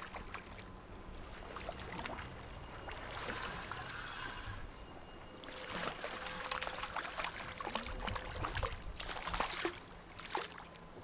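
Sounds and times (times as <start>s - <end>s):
fish splashing in water: 5.4s - 10.8s.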